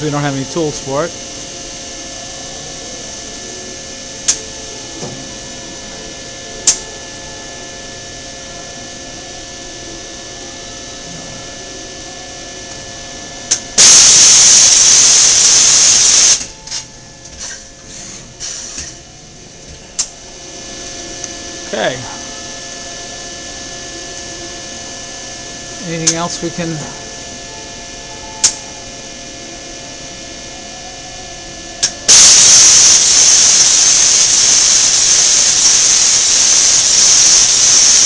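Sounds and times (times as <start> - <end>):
machine humming: 0.0 - 17.4, 19.0 - 38.0
compressed air rush: 32.1 - 38.0.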